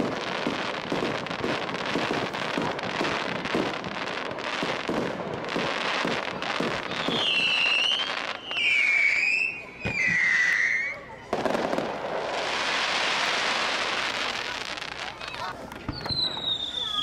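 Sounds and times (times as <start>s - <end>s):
fireworks crackling and popping: 0.0s - 17.0s
high firework whistle: 6.6s - 11.2s, 15.9s - 17.0s.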